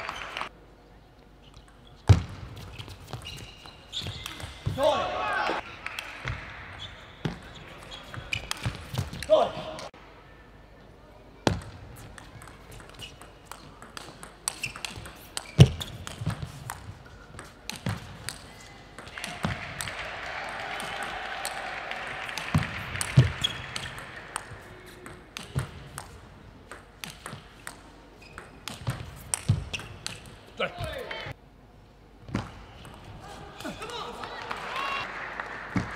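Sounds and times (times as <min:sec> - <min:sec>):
crowd noise: 0:00.0 - 0:01.0, 0:18.5 - 0:26.6, 0:33.0 - 0:35.9.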